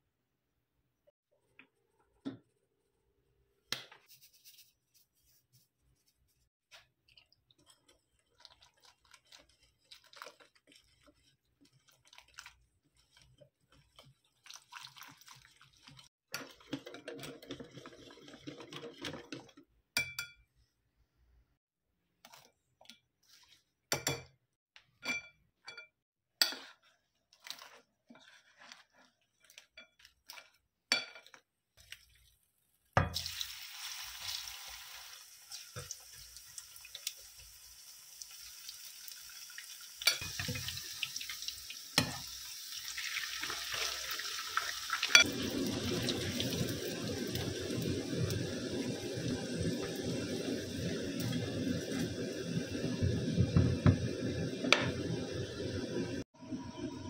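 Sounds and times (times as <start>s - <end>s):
whisk mixing wet batter: 4.0s - 19.7s, 26.4s - 32.4s
spoon stirring: 7.1s - 20.5s, 25.0s - 32.3s.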